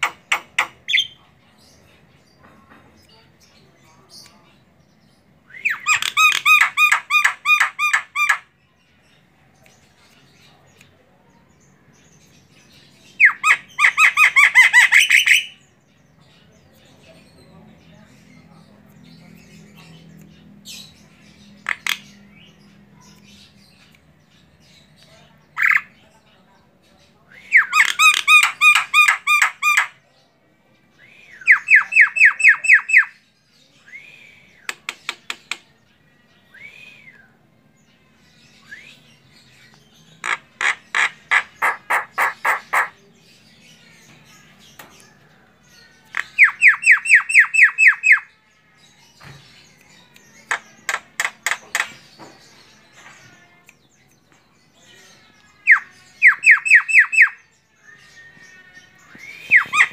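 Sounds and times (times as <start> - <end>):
bird harsh calls: 5.6 - 8.5, 13.2 - 15.6, 27.5 - 30.0, 40.1 - 43.0, 59.2 - 59.9.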